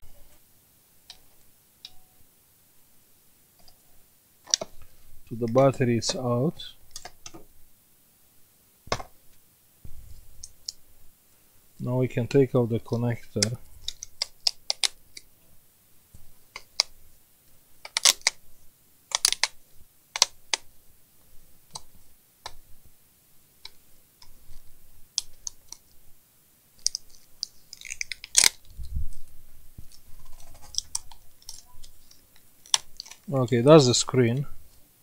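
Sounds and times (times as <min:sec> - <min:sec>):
tape peeling: 0:13.4 - 0:15.3, 0:17.8 - 0:18.4, 0:19.1 - 0:20.6, 0:26.8 - 0:28.8, 0:29.8 - 0:33.3.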